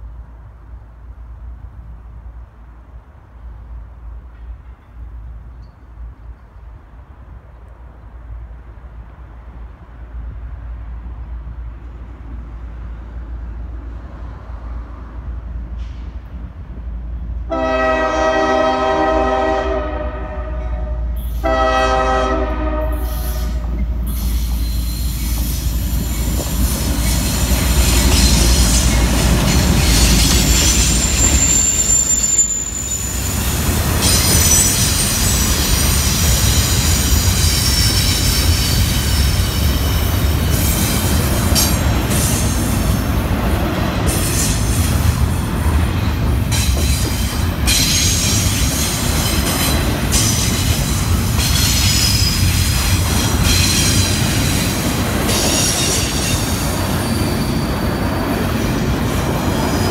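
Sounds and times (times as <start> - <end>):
diesel locomotive rumble: 0.0 - 59.9
train wheels rumbling: 0.0 - 59.9
train air horn blasts: 17.5 - 24.5
high-pitched wheel squeal: 23.1 - 40.1, 55.3 - 59.9.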